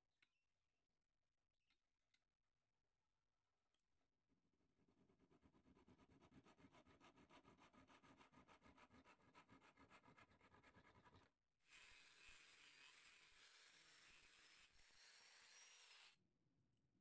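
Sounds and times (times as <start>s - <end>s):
hand saw cutting wood: 11.7s - 16.2s.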